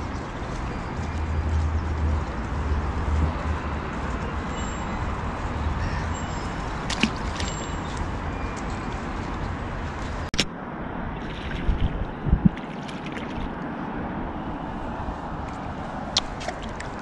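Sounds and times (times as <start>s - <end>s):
wind rumble on microphone: 0.0s - 17.0s
fish splashing into water: 6.9s - 7.6s.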